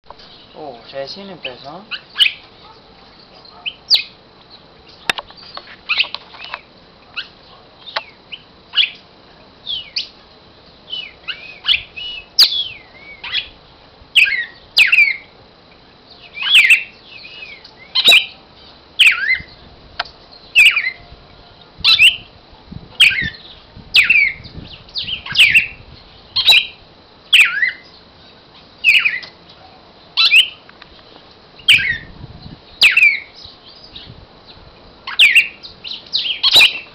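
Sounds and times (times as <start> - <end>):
sharp clicks: 5.0 - 6.6.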